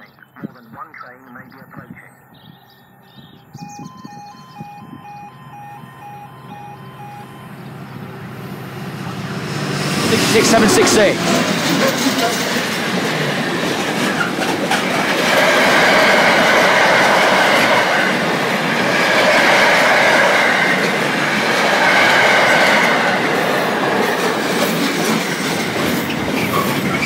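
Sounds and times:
train wheels clattering over joints: 8.9 - 27.0.

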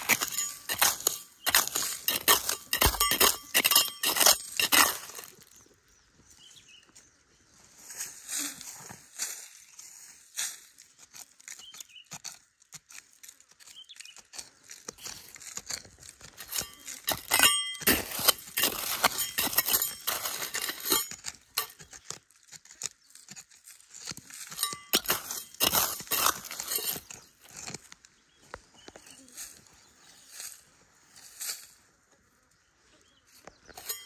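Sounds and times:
stones clicking against metal: 0.0 - 5.7, 11.6 - 28.0
trowel scraping gravelly soil: 0.0 - 5.8, 7.7 - 34.0.

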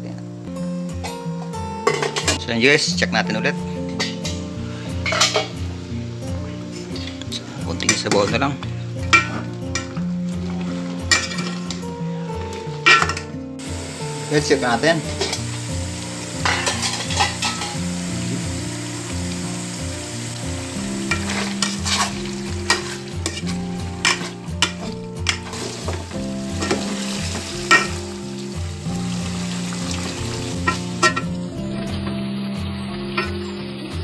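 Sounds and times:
meat sizzling in fat: 4.0 - 34.0
metal spoon scraping a pot: 5.0 - 5.6, 9.0 - 13.3, 15.1 - 15.5, 16.4 - 17.9, 21.1 - 28.0.

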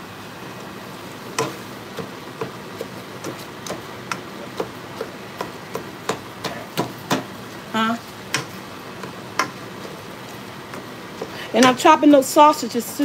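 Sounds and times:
meat sizzling in pan: 0.0 - 13.0
spatula knocking on skillet: 1.3 - 7.4, 8.2 - 9.9.

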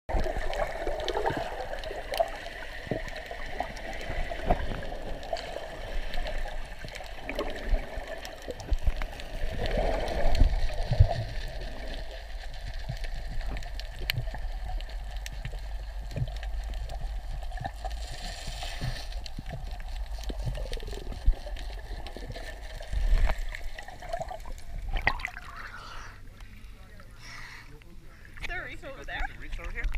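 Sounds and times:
muffled underwater water wash: 0.1 - 29.9
water surges: 0.1 - 29.9.

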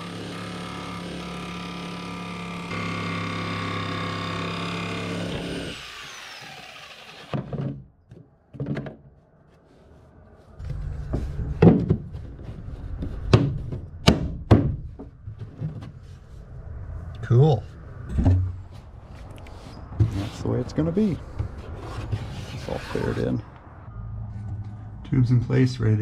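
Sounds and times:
jigsaw cutting: 0.0 - 7.7
knocks and handling noise: 7.3 - 16.4, 18.1 - 20.4, 21.2 - 22.6.

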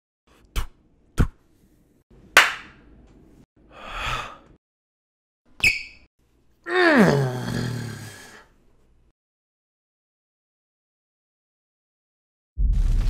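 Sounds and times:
cartoon slap hits: 2.4 - 2.8.

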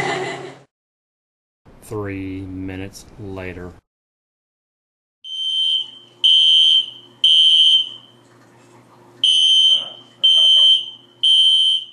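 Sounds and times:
smoke alarm beeping: 5.2 - 8.1, 9.2 - 11.9.

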